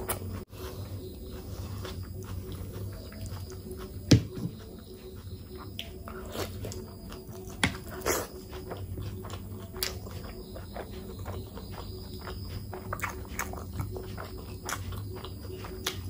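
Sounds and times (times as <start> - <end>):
person chewing: 0.0 - 16.0.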